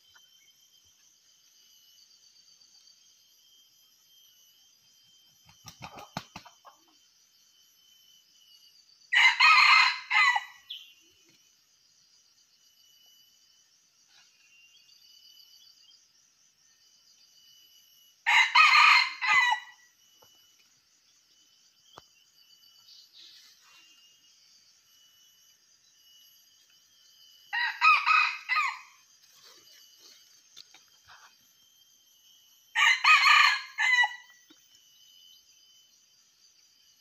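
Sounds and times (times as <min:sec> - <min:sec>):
insects droning: 0:00.0 - 0:37.0
rooster wings flapping: 0:05.4 - 0:06.6
rooster crowing: 0:09.1 - 0:10.7, 0:18.2 - 0:19.8, 0:27.5 - 0:29.0, 0:32.7 - 0:34.4.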